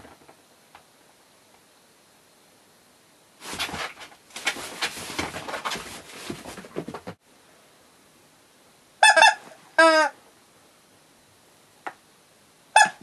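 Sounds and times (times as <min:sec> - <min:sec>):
cat scrabbling on a rug: 0:03.4 - 0:07.2
squeezed toy honking: 0:09.0 - 0:10.1, 0:12.8 - 0:13.0.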